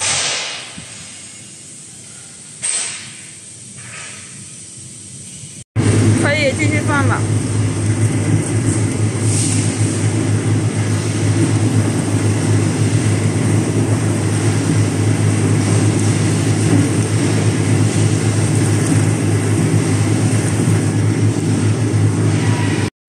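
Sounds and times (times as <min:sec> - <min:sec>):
washing machine low hum: 0:05.8 - 0:22.9.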